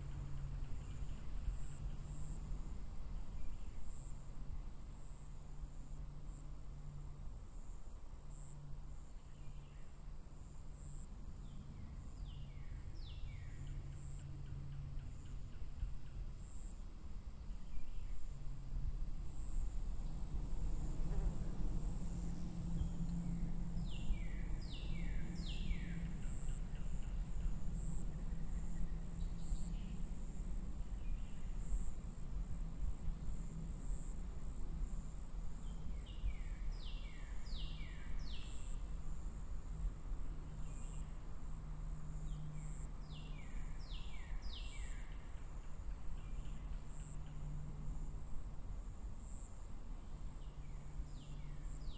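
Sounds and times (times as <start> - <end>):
low rumble and hum: 17.4 - 49.5.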